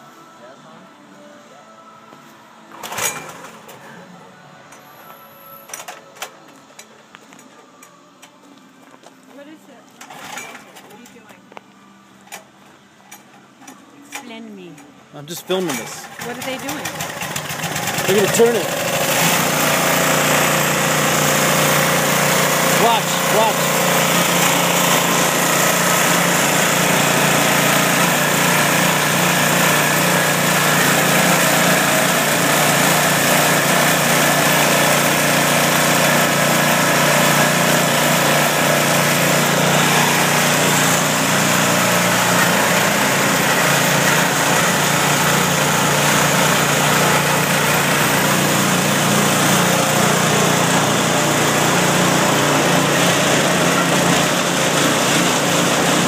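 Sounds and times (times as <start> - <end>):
small engine running: 15.4 - 56.0.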